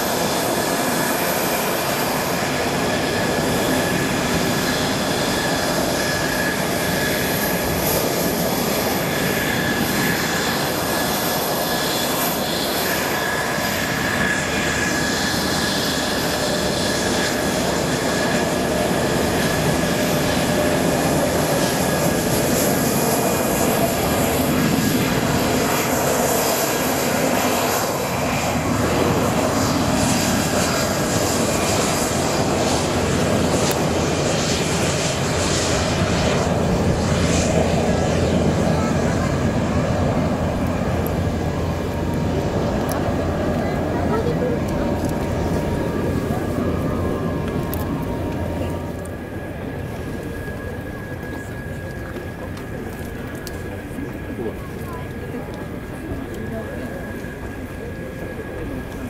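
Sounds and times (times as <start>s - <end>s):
jet engines taxiing: 0.0s - 59.0s.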